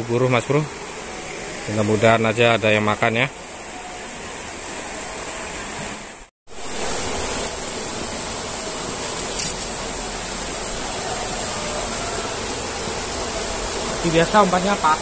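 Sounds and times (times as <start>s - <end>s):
stream rushing over riffles: 6.6s - 15.0s.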